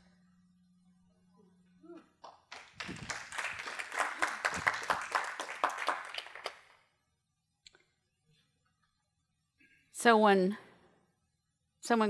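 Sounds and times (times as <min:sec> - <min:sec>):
crowd applauding: 0:02.2 - 0:06.8.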